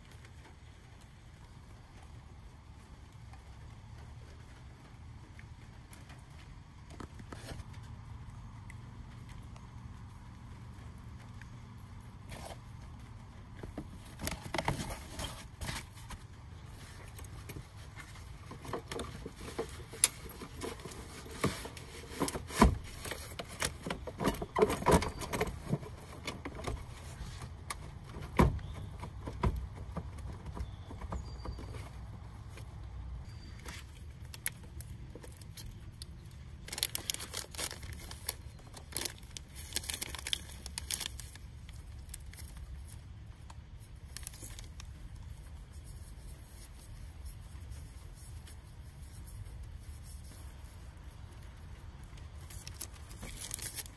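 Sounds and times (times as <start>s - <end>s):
plastic packet rustling: 13.6s - 29.1s, 33.6s - 50.8s, 52.3s - 53.9s.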